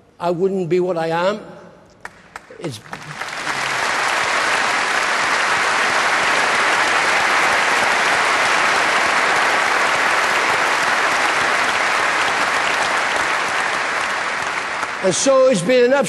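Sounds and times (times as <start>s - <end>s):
audience applauding: 2.0s - 15.9s.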